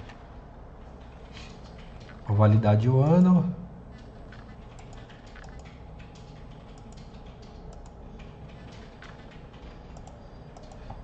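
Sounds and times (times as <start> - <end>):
low steady hum: 0.0 - 11.0
computer mouse clicks: 3.9 - 11.0.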